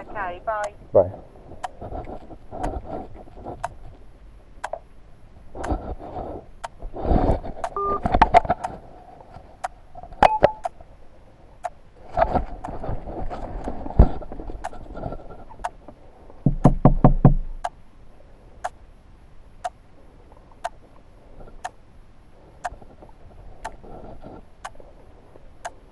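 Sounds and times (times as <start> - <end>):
phone keypad beeps: 7.8 - 8.0, 10.2 - 10.7.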